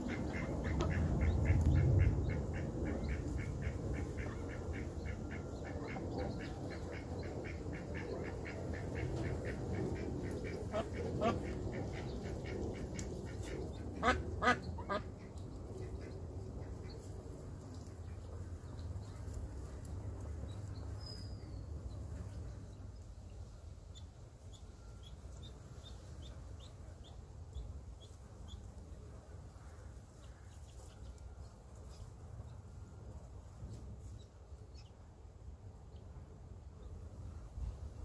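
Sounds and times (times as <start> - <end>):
ducklings peeping: 0.0 - 29.0
low background rumble: 0.0 - 38.0.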